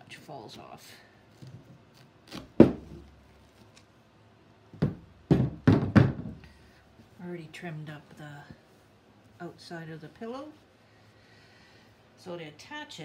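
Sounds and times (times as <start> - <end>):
knocks from wooden frame handled: 4.8 - 6.4.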